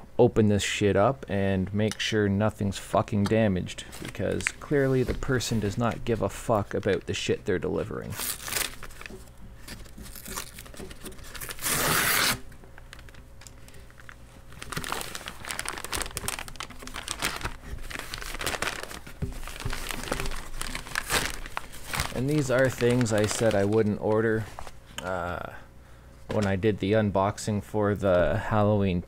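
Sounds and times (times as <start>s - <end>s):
packaging crinkling and rustling: 3.8s - 7.3s, 7.9s - 24.8s
package being torn open: 8.1s - 24.0s.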